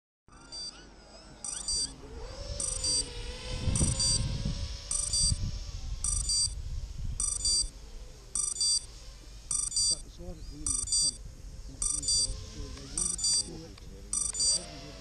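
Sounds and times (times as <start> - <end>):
electronic double beeps: 0.3 - 0.8, 1.4 - 2.0, 2.6 - 3.1, 3.8 - 4.2, 4.9 - 5.4, 6.0 - 6.6, 7.2 - 7.7, 8.4 - 8.9, 9.5 - 10.0, 10.6 - 11.2, 11.8 - 12.4, 13.0 - 14.8
drone motors humming: 0.3 - 15.0
low rushing rumble: 2.5 - 14.2.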